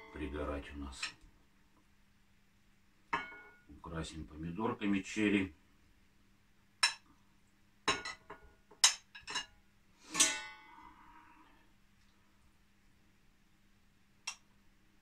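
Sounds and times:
metal spoon clinking against pan: 3.2 - 3.6, 6.8 - 7.1, 7.9 - 10.5.

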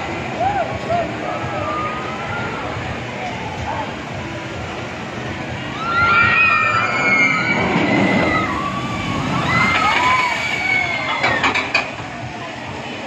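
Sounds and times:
riders screaming: 5.7 - 11.6
water splashing: 7.8 - 12.3.

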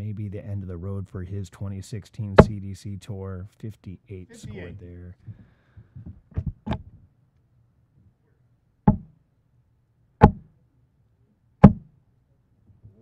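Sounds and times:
darts striking dartboard: 8.9 - 9.1, 10.2 - 10.5, 11.6 - 11.9.

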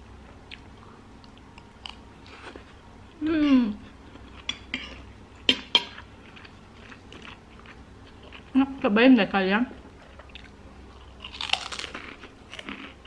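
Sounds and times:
person humming: 3.2 - 3.8
cutlery clinking on plate: 4.5 - 6.0.

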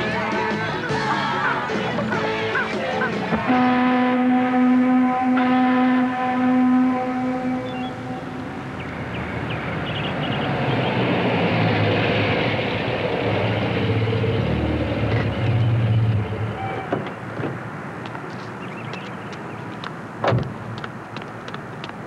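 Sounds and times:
vehicle passing by: 8.0 - 16.6.

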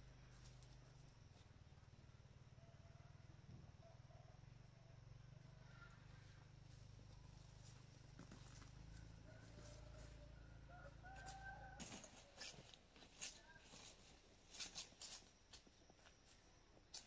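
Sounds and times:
distant rooster crowing: 2.6 - 5.0, 8.9 - 12.8
footsteps on dry leaves: 11.0 - 17.0.

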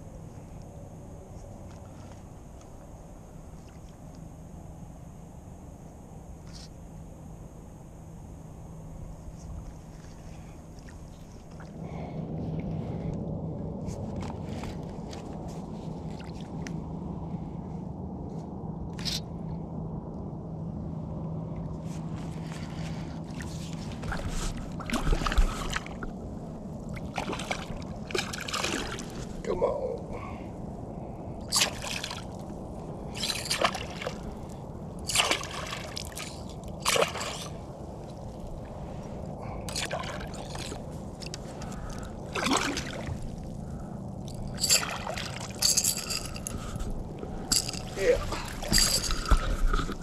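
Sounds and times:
kayak moving on water: 9.0 - 16.9, 21.7 - 29.4, 31.4 - 50.0.

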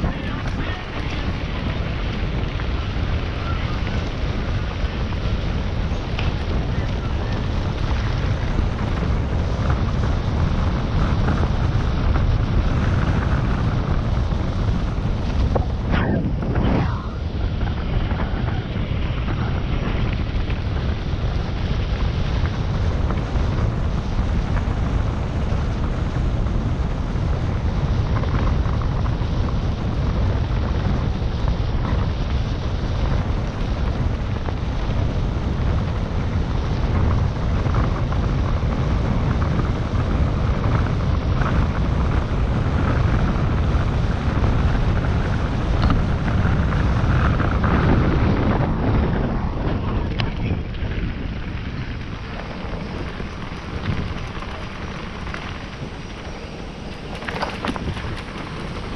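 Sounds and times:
tyres rattling over gravel: 0.0 - 15.9, 43.5 - 58.9
wind rushing over microphone: 0.0 - 58.9.

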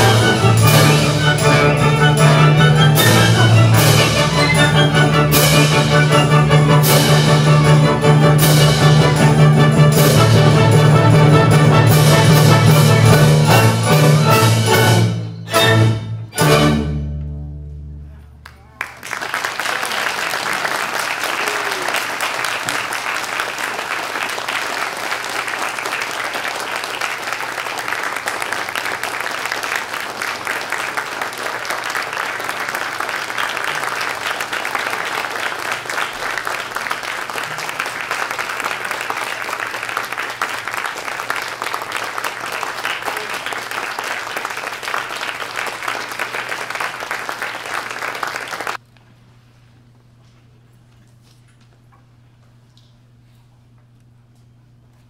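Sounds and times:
audience applauding: 18.4 - 48.8.

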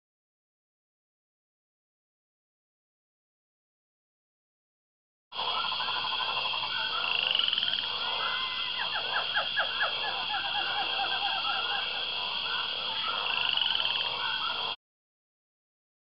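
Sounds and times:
high insect drone: 5.3 - 14.8
animal calls: 5.4 - 14.8.

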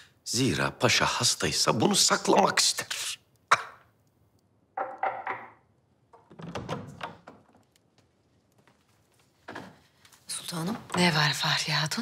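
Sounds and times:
knock on wooden door: 4.8 - 5.6
door opening: 4.8 - 7.8
footsteps stepping in: 7.2 - 10.2.

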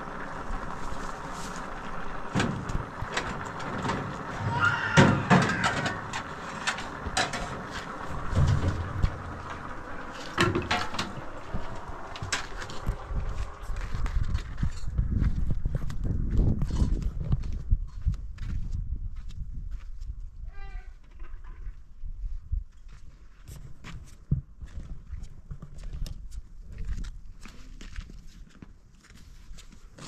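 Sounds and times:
irregular knocks and clatters: 5.0 - 14.9.

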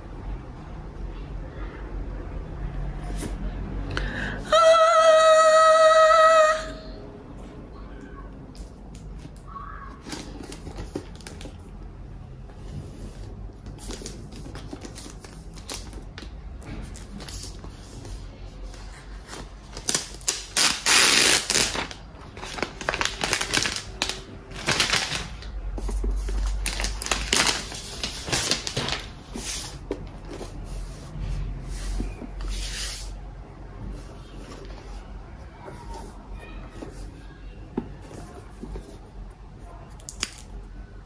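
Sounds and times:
plastic wrap rustling and crinkling: 10.0 - 11.9, 12.7 - 33.2.

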